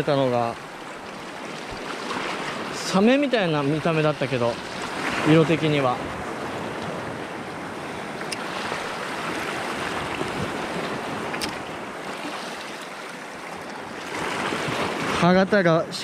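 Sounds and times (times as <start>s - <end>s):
surf washing over shoreline: 0.0s - 16.0s
wind on microphone: 4.5s - 12.6s.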